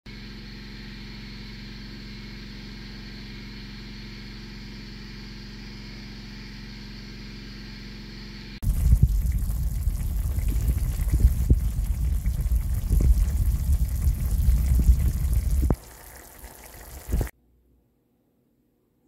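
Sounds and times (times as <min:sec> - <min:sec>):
low rumble: 0:08.6 - 0:17.3
meat bubbling and sizzling: 0:08.6 - 0:17.3.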